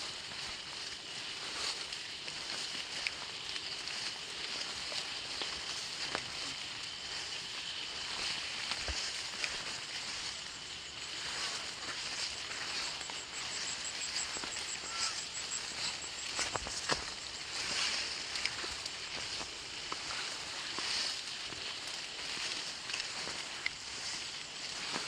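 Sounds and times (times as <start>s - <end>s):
plants rustling against legs: 0.0s - 25.0s
steady high-pitched hiss: 0.0s - 25.0s.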